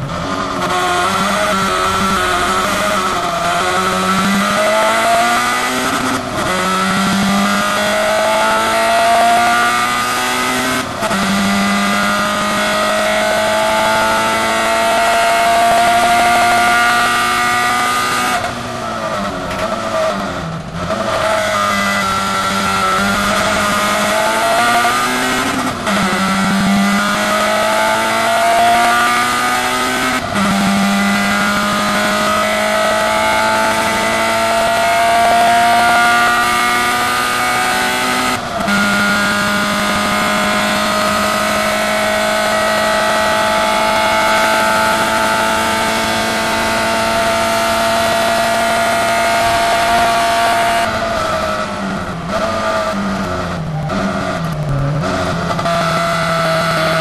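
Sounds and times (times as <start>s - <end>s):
race car engine at full throttle: 0.0s - 57.0s.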